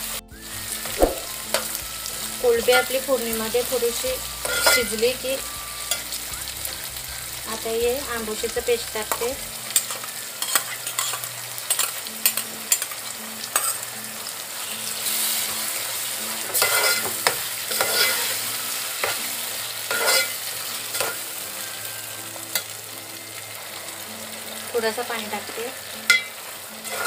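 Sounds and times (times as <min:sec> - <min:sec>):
prawns and onions sizzling in oil: 0:00.0 - 0:27.0
spoon clinks: 0:04.4 - 0:06.2, 0:26.1 - 0:26.3
spoon scraping metal pot: 0:16.5 - 0:18.4, 0:19.9 - 0:21.2, 0:26.1 - 0:27.0.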